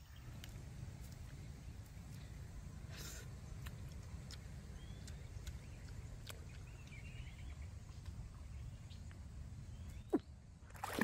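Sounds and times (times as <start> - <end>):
faint bird chirps: 4.6 - 10.4.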